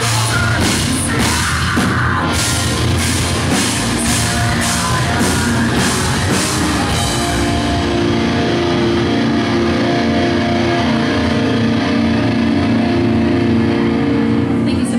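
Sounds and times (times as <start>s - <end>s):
heavy drum and cymbal hits: 0.0s - 9.2s
live rock band playing: 0.0s - 14.9s
guitars holding ringing chord: 2.0s - 14.8s.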